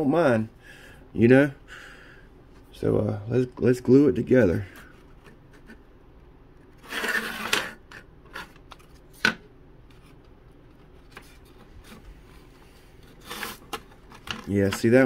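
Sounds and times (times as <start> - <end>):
wooden parts scraping: 6.7 - 9.3, 13.0 - 15.0.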